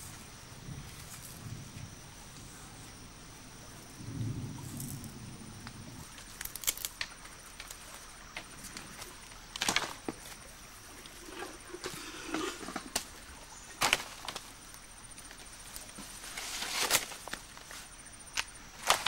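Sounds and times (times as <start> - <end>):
bare feet on dry leaves and twigs: 6.1 - 19.0.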